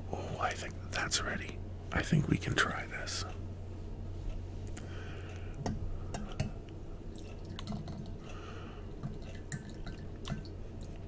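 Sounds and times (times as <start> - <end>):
liquid dripping: 5.6 - 11.0.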